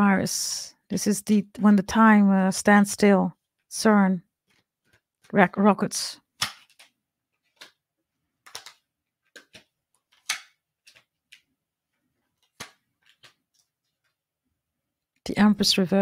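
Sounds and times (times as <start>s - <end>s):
cards clicking and rustling: 4.4s - 5.1s, 6.3s - 14.2s.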